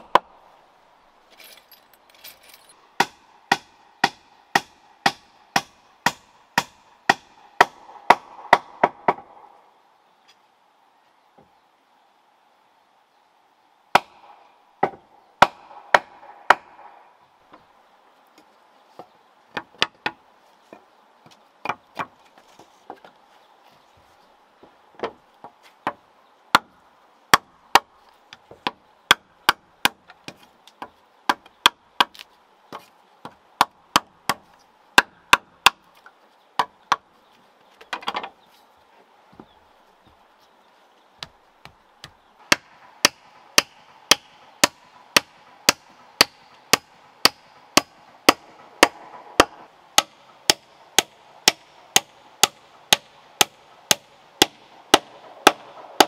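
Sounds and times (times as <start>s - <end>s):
machete chopping bamboo: 3.0s - 9.3s, 13.9s - 16.8s, 28.6s - 35.8s, 42.0s - 56.0s.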